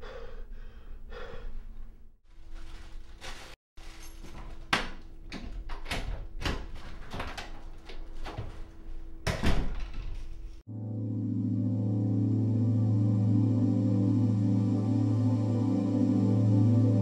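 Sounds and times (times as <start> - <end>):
door lock and handle clicks: 4.8 - 7.6.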